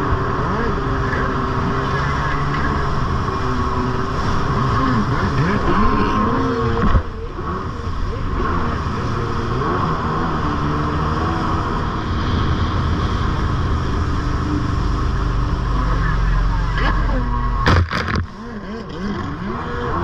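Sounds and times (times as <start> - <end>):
jet ski engine running: 0.0 - 20.0
rushing water: 0.0 - 20.0
sharp thump: 17.6 - 18.3.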